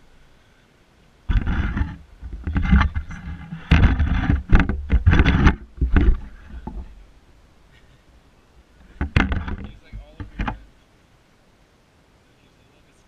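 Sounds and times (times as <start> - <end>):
camera handling bumps and rubbing: 1.3 - 7.0, 8.8 - 10.6.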